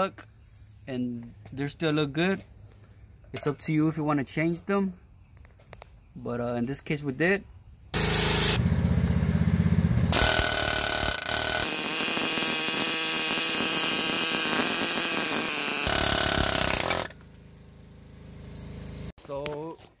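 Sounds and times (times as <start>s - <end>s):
pneumatic air hammer rattling: 8.0s - 8.6s, 10.1s - 17.3s.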